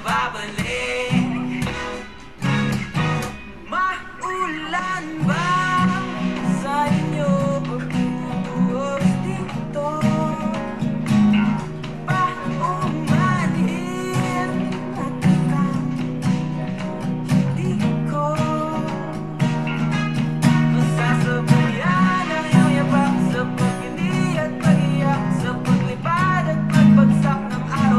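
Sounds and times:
person singing: 0:00.0 - 0:02.1, 0:03.5 - 0:27.9
acoustic guitar strumming: 0:00.0 - 0:27.9.

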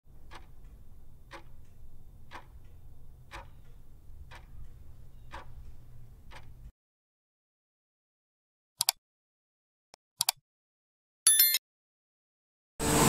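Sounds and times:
clock ticking: 0:00.1 - 0:06.6.

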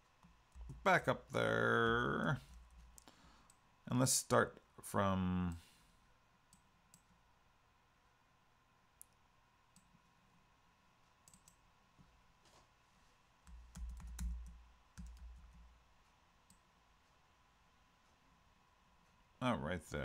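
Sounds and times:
computer mouse clicks: 0:09.8 - 0:10.0, 0:11.2 - 0:11.6.

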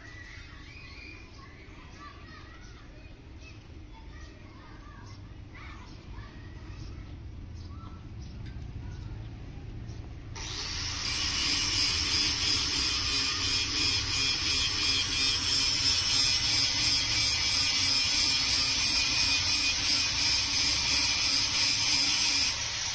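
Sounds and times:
power tool running: 0:10.4 - 0:22.9.

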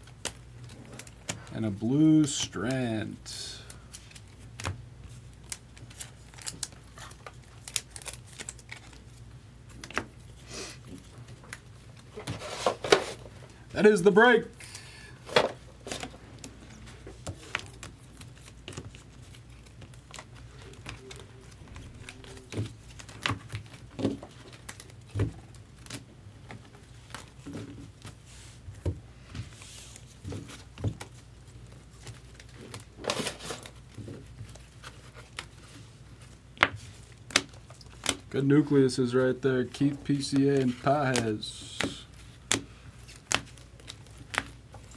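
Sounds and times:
cards rustling: 0:00.0 - 0:44.9
plastic card sleeves clicking: 0:39.6 - 0:44.9.

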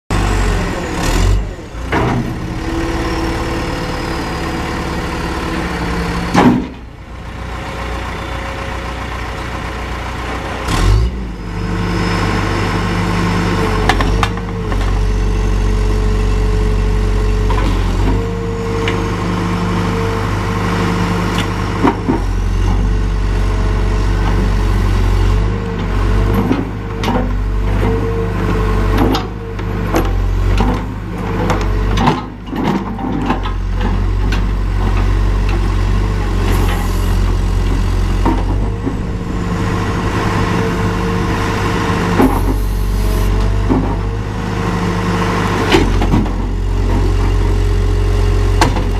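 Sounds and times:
diesel engine running: 0:00.1 - 0:48.9
loud metal clunks: 0:06.3 - 0:06.9, 0:37.6 - 0:44.2.

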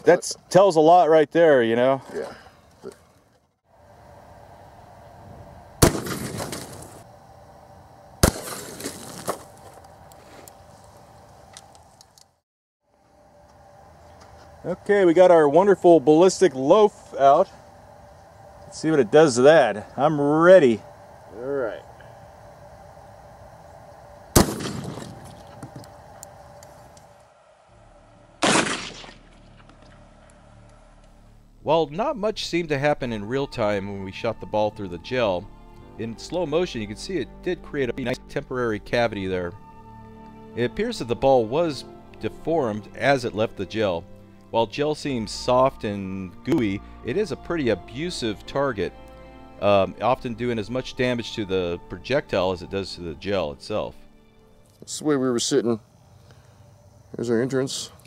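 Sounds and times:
shotgun shots echoing: 0:05.8 - 0:07.0, 0:08.2 - 0:09.4, 0:24.4 - 0:25.4, 0:28.4 - 0:29.2.

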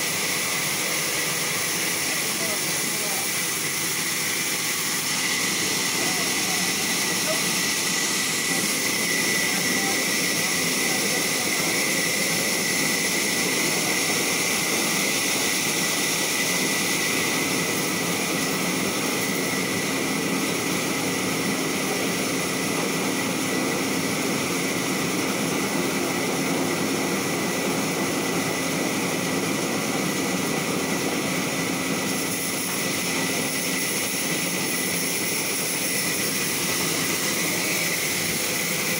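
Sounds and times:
band saw cutting log: 0:00.0 - 0:38.9.

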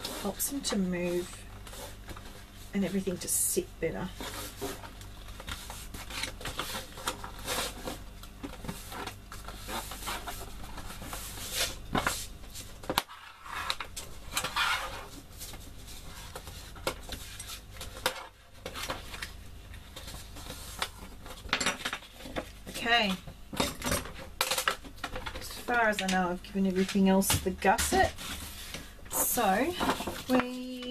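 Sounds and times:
bone folder scraping card: 0:13.0 - 0:15.2.

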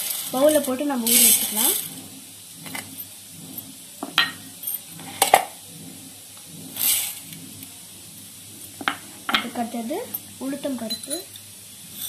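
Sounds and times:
grainy rustle of rice: 0:00.0 - 0:01.9.

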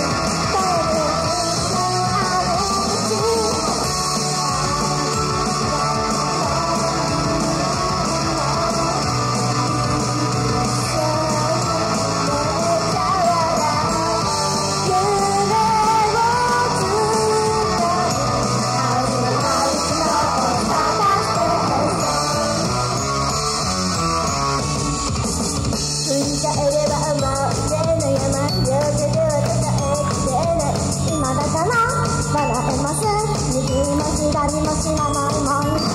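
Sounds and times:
rock backing music with guitar: 0:00.0 - 0:26.2
women singing into microphones: 0:00.4 - 0:09.2, 0:09.8 - 0:22.4.

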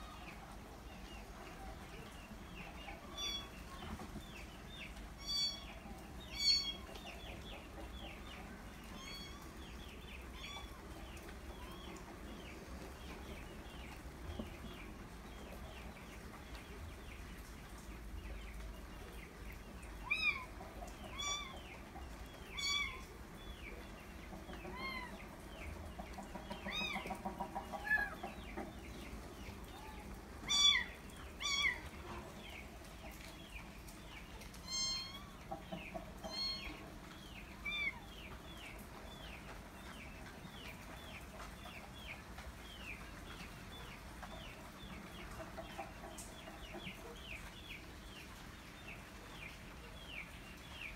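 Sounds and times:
chicks peeping: 0:00.1 - 0:50.9
hen clucking: 0:20.0 - 0:42.2, 0:42.8 - 0:48.2.

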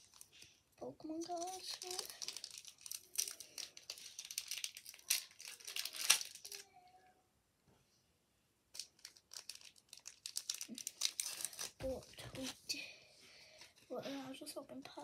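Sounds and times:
foil wrapper crinkling and tearing: 0:00.0 - 0:00.5, 0:01.2 - 0:06.7, 0:08.7 - 0:12.6.

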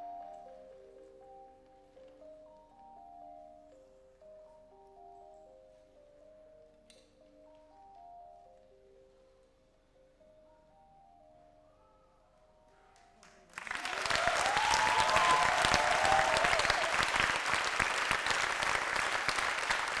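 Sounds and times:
soft mallet music: 0:00.0 - 0:13.5
audience applause: 0:13.5 - 0:20.0
audience cheering: 0:13.6 - 0:20.0.

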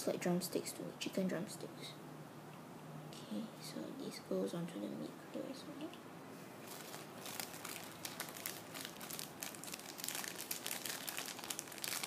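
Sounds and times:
packaging crinkling: 0:06.6 - 0:12.0.

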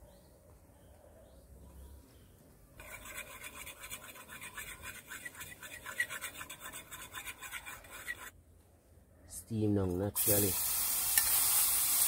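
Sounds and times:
spices frying in hot oil: 0:10.2 - 0:12.0.

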